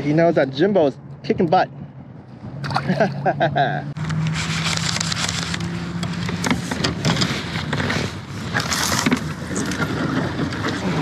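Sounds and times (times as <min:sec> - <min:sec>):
paddle strokes through water: 0:06.3 - 0:11.0.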